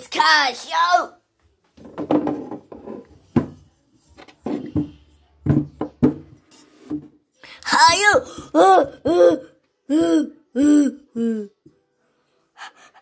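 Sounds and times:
objects knocking on wooden surface: 0:01.8 - 0:03.6, 0:04.2 - 0:07.2.

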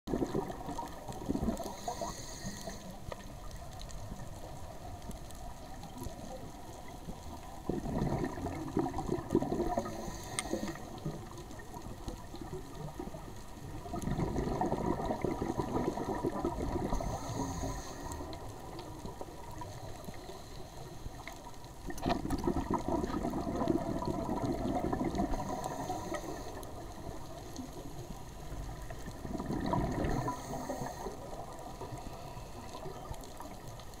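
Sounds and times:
exhaled bubbles underwater: 0:00.1 - 0:20.5, 0:21.1 - 0:34.0
regulator inhalation hiss: 0:01.6 - 0:03.2, 0:09.8 - 0:11.1, 0:16.9 - 0:18.4, 0:25.4 - 0:27.2, 0:30.1 - 0:33.0.

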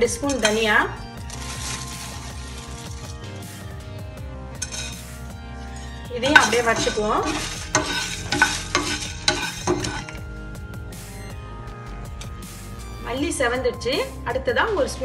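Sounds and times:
spatula scraping a pan: 0:01.3 - 0:03.2, 0:04.6 - 0:05.1, 0:05.7 - 0:10.2.

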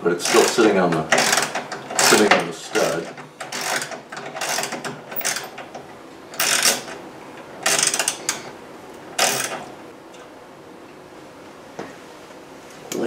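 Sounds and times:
ratchet wrench clicking: 0:01.2 - 0:02.3, 0:03.4 - 0:05.5, 0:06.4 - 0:06.9.

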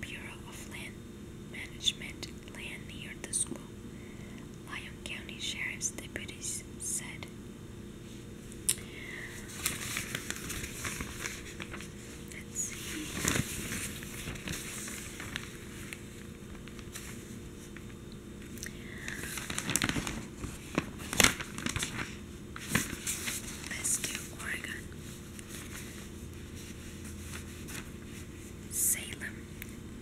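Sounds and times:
newspaper pages rustling: 0:09.4 - 0:28.6.

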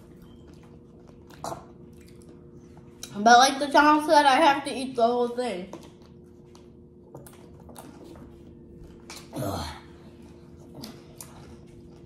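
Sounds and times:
chewing and crunching: 0:00.0 - 0:03.2, 0:05.7 - 0:12.0.

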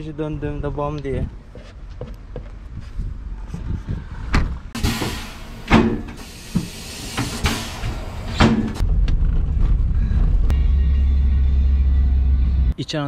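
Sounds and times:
road rumble: 0:00.0 - 0:12.8
compressed air hissing: 0:04.8 - 0:08.8.

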